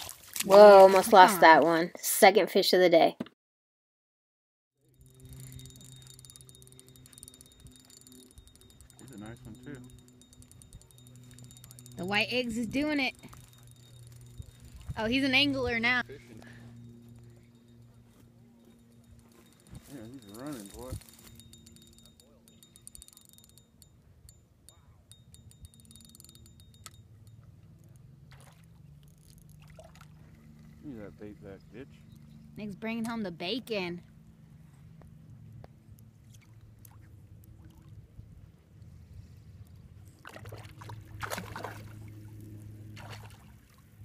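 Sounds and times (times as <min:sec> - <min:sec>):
low outdoor rumble: 0:04.8 - 0:44.0
steady low hum: 0:04.8 - 0:44.0
fishing reel clicking: 0:04.9 - 0:15.3, 0:18.9 - 0:24.4, 0:25.1 - 0:28.1, 0:29.0 - 0:29.6
fish splashing at water surface: 0:40.2 - 0:43.8.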